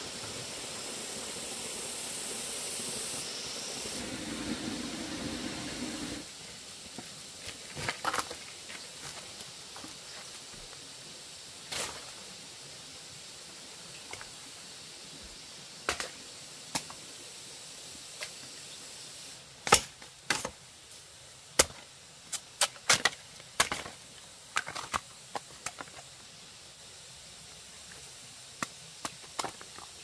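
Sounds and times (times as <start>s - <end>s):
flowing water rushing: 0.0s - 6.3s
sharp knocks and cracks: 19.6s - 20.6s.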